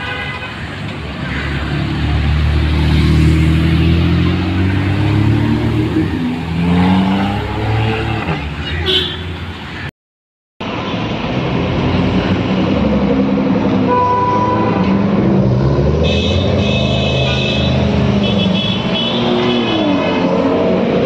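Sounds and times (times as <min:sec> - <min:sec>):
car horns honking: 0:00.0 - 0:00.6, 0:07.5 - 0:09.5, 0:13.8 - 0:15.2, 0:16.0 - 0:20.1
car engines rumbling: 0:00.0 - 0:09.9, 0:10.6 - 0:21.0.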